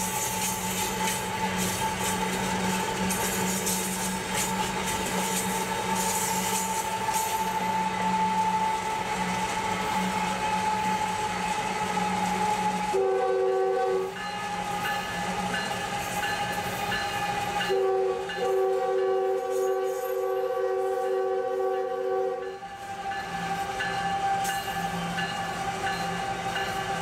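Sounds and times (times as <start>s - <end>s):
diesel locomotive engine hum: 0.0s - 27.0s
locomotive air horn: 11.8s - 14.2s, 17.4s - 22.8s.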